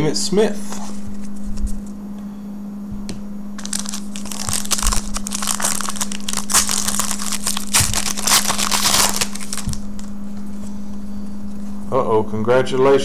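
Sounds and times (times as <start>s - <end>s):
foil wrapper crinkling: 3.6s - 10.1s.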